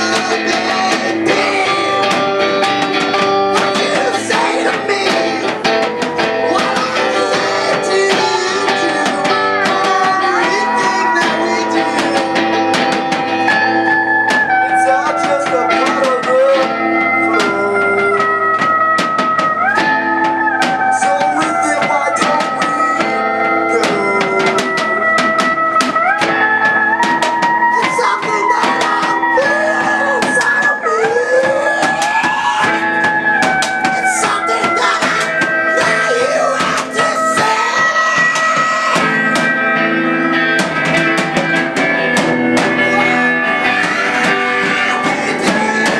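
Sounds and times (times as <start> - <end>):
drum kit with cymbals: 0.0 - 45.9
electric guitar: 0.0 - 45.9.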